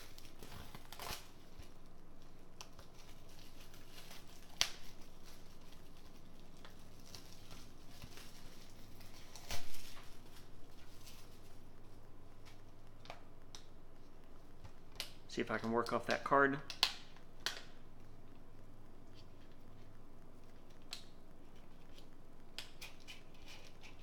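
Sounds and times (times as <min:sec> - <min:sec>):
plastic wrap crinkling and tearing: 0:00.0 - 0:16.8.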